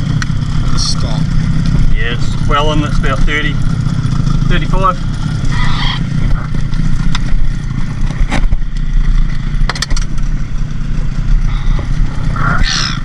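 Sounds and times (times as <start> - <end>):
boat engine rumbling: 0.0 - 13.0
sharp clicks and knocks: 8.0 - 10.3.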